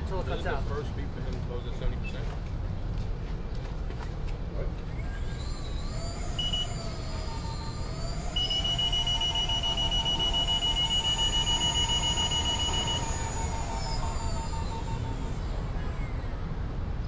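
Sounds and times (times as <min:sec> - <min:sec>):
motor whine spinning up: 0:05.0 - 0:16.7
long steady high beep: 0:06.4 - 0:06.9, 0:08.3 - 0:15.1
pulsing lower beep: 0:06.4 - 0:06.9, 0:08.3 - 0:15.4.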